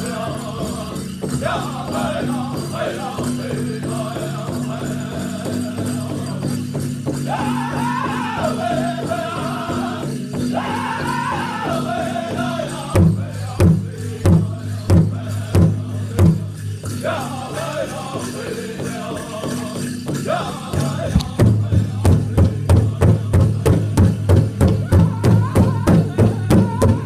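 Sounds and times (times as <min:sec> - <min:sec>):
group singing in high voices: 0:00.0 - 0:27.0
leg bells jingling: 0:00.0 - 0:27.0
big drum beating: 0:07.0 - 0:16.7, 0:20.8 - 0:27.0.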